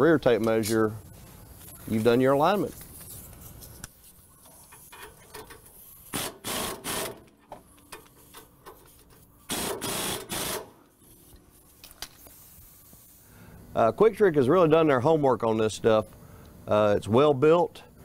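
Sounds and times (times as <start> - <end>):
pneumatic wrench bursts: 5.0 - 7.3, 9.5 - 10.8.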